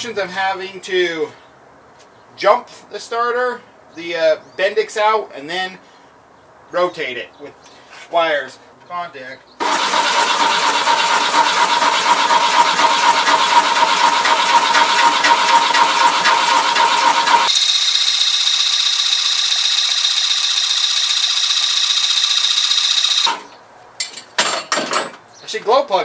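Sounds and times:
starter motor cranking engine: 9.6 - 23.5.

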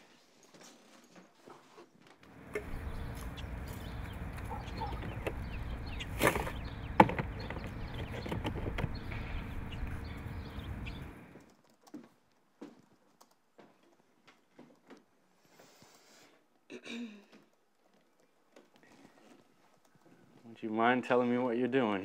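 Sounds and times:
low background rumble: 2.4 - 11.4.

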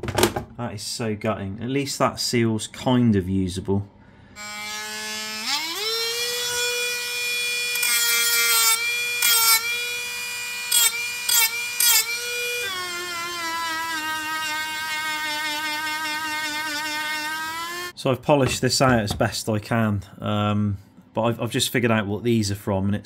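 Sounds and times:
rotary tool whining: 4.4 - 17.9.

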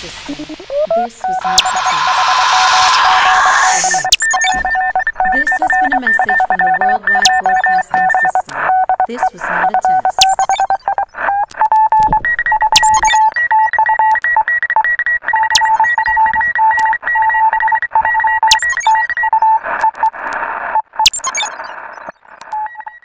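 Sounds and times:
rapid electronic beeping: 0.3 - 23.0
sharp hit: 1.4 - 4.3.

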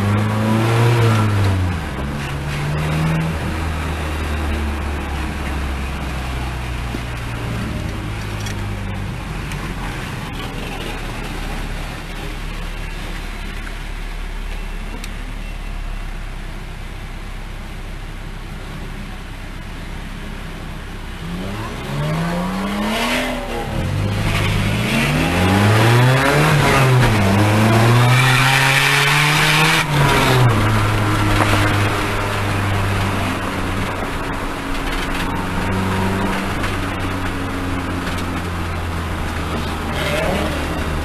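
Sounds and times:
car engine revving: 0.0 - 41.0.

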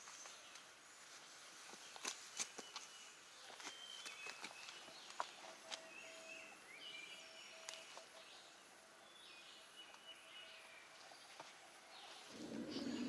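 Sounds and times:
birdsong sliding calls: 9.6 - 13.0.

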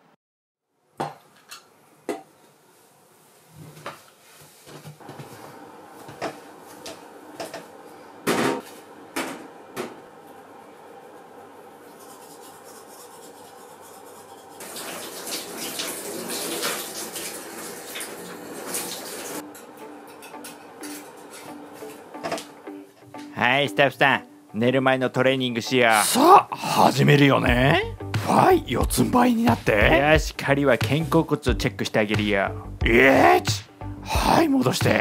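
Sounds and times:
kitchen tap running into sink: 14.6 - 19.4
dishes clinking: 19.6 - 21.5.

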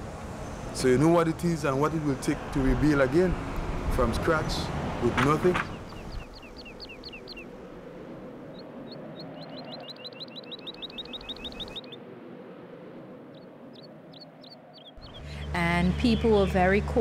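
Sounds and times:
small bird chirping: 5.6 - 7.6, 8.5 - 12.0, 13.3 - 16.3.

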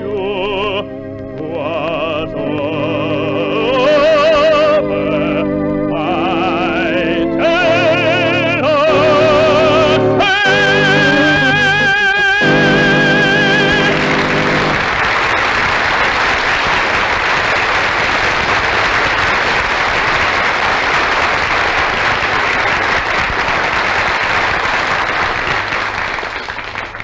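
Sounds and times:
orchestral accompaniment: 0.1 - 15.1
audience applause: 8.9 - 27.0.

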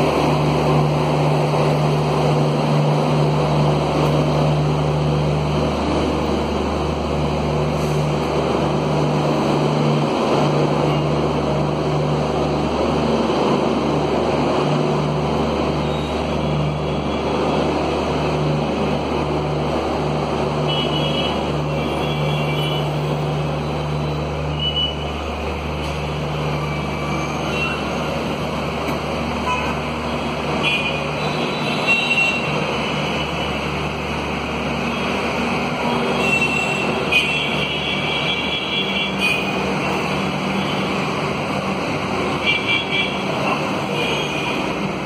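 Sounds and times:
train wheels rumbling on rails: 0.0 - 45.0
high-pitched wheel squeals: 26.6 - 28.2.

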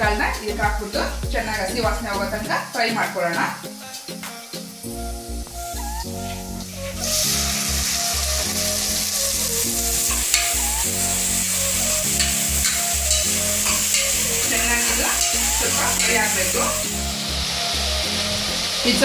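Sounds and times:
sizzling in hot oil: 0.0 - 19.0
metal spoon scraping pot: 12.2 - 14.2, 14.9 - 16.3.

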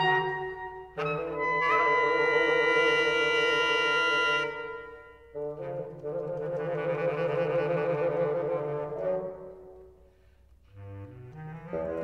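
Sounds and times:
woodwind trio holding a chord: 0.0 - 9.9, 10.7 - 12.0.

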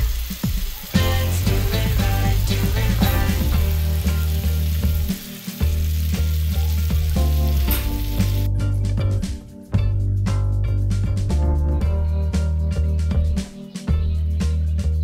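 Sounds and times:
food sizzling in a frying pan: 0.0 - 8.5
background music: 0.0 - 15.0.

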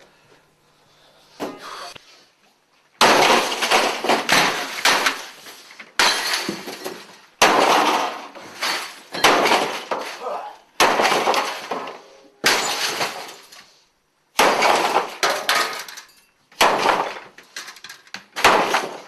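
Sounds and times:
breaking glass: 3.0 - 13.7, 14.4 - 17.4, 18.4 - 19.0
clattering debris: 3.0 - 13.7, 14.4 - 19.0.

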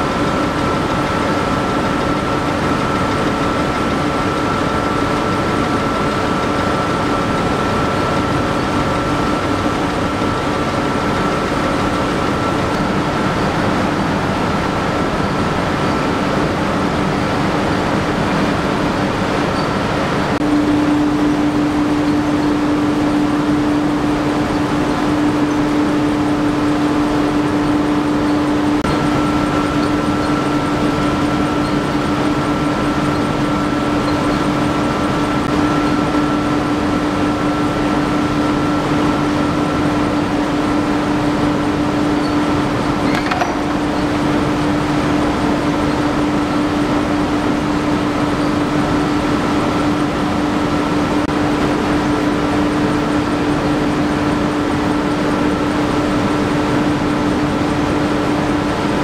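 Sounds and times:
vibrating machine drone: 0.0 - 59.0
high whine: 42.4 - 45.2.

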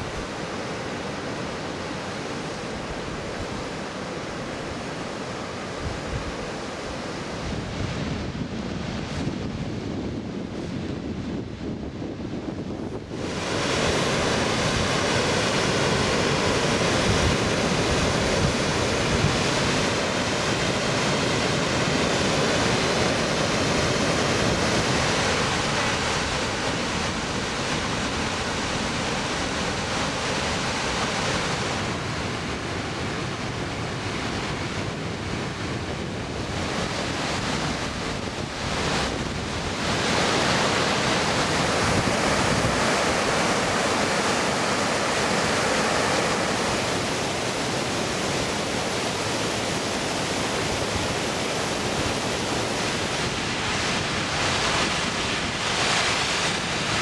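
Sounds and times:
waterfall rushing: 13.0 - 34.2, 35.1 - 57.0.

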